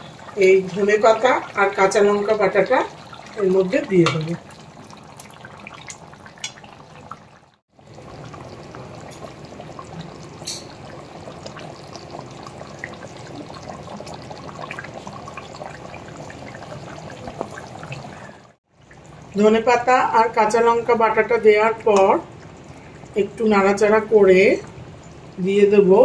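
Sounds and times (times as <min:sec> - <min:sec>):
curry bubbling with small pops: 0:00.0 - 0:25.4.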